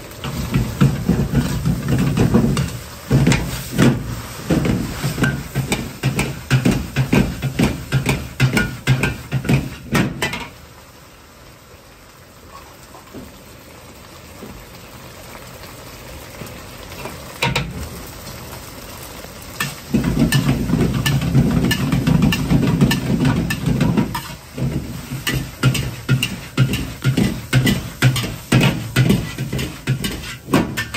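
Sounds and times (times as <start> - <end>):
rapid stirring clatter: 0.0 - 10.5, 19.6 - 30.9
food sizzling: 0.0 - 30.9
ladle clanking against wok: 0.2 - 10.6, 19.6 - 30.9.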